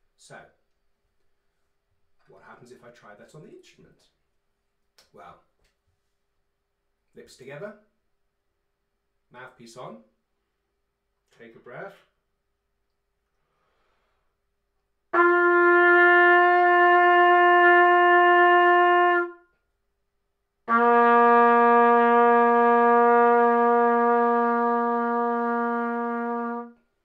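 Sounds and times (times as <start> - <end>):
trumpet long held notes: 15.1 - 19.4, 20.6 - 26.9.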